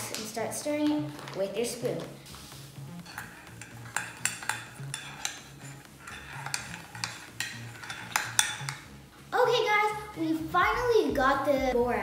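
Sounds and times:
spoon clinking in a mug: 3.2 - 8.8.

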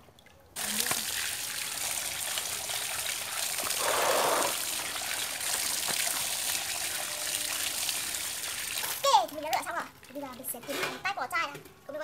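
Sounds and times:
tap water pouring: 0.0 - 11.7.

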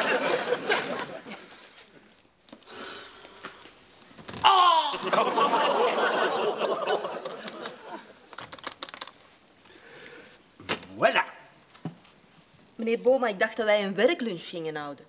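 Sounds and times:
audience laughing: 0.0 - 1.7, 4.9 - 8.3.

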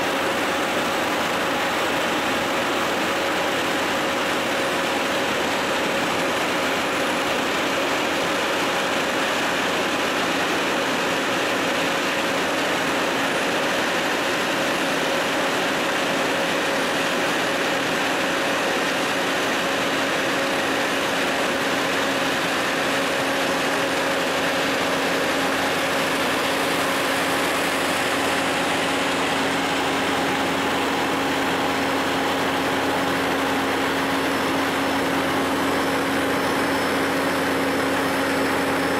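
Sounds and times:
diesel paving machinery running: 0.0 - 38.9
truck unloading asphalt: 0.0 - 38.9.

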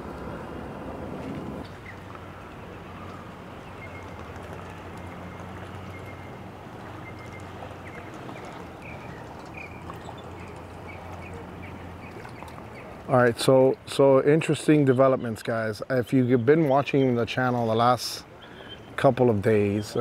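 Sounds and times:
low engine hum: 0.0 - 13.9
bird chirps: 7.0 - 12.9.

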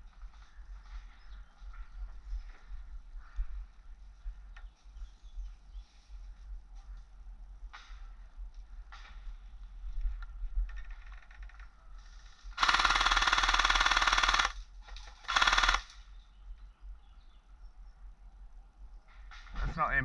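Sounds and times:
airsoft rifle automatic fire: 12.6 - 14.6, 15.2 - 16.0.

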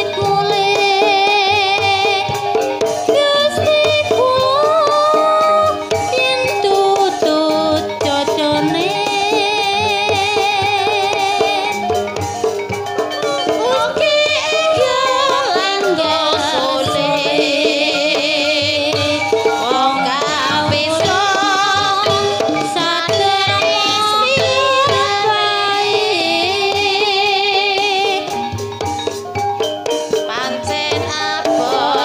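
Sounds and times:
person singing a melody: 0.0 - 11.9, 13.2 - 28.5, 30.2 - 32.0
percussion and drums: 0.0 - 32.0.

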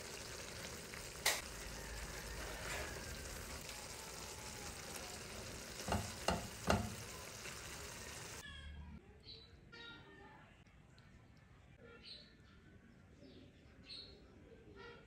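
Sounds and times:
food sizzling in a frying pan: 0.0 - 8.4
spatula knocking against pan: 5.8 - 7.1.

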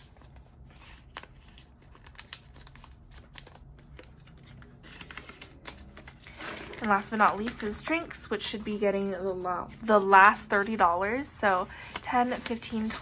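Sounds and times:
banknotes crinkling: 0.0 - 13.0
light ticks of plastic envelope: 0.2 - 7.8.

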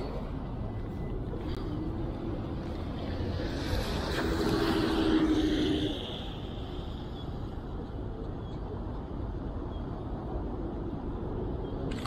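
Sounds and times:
low traffic rumble: 0.0 - 12.0
vehicle passing with tyre hiss: 1.4 - 7.4.

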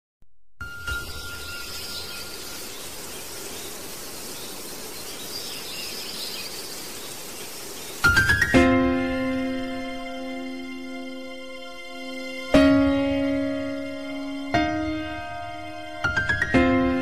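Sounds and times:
music with rising run of notes: 8.2 - 17.0.

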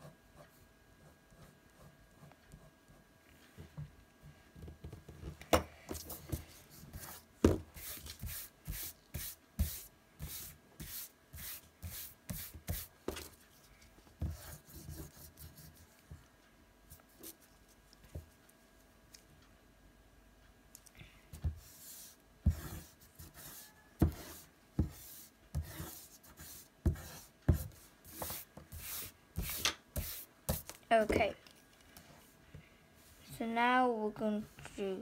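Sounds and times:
eraser rubbing on paper: 7.8 - 13.2, 21.6 - 30.7.

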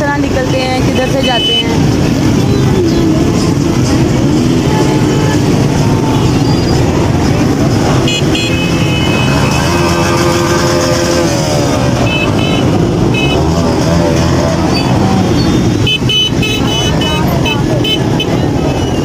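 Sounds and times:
motorcycle engines in traffic: 0.0 - 19.0
horn beeps: 0.8 - 2.0, 7.9 - 19.0
long horn blast: 8.0 - 14.3.

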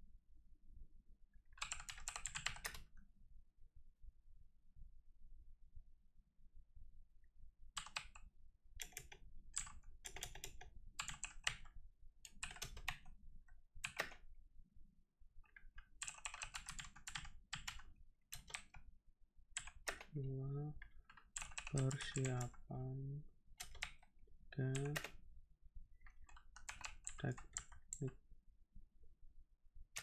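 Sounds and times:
computer keyboard typing: 1.6 - 2.9, 7.8 - 8.2, 8.8 - 11.7, 12.3 - 13.1, 13.8 - 14.2, 15.9 - 18.8, 19.6 - 20.2, 20.9 - 22.7, 23.6 - 24.0, 24.6 - 25.2, 26.2 - 28.2.

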